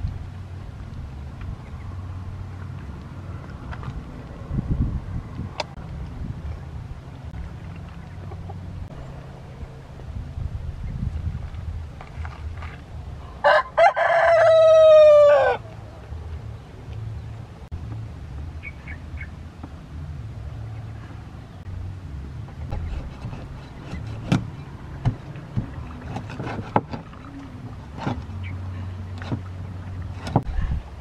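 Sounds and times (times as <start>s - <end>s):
rooster crowing: 13.4s - 15.6s
cleaver chopping on wooden board: 22.7s - 27.1s.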